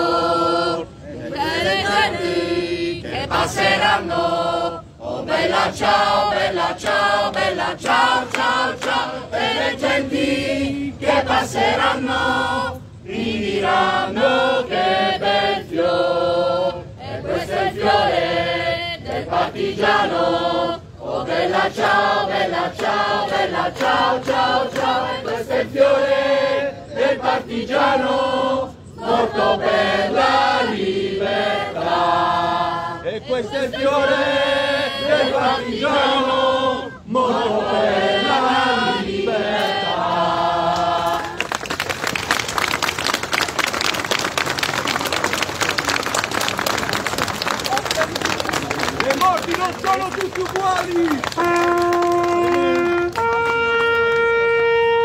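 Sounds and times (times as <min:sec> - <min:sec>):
group of people singing: 0:00.0 - 0:41.5.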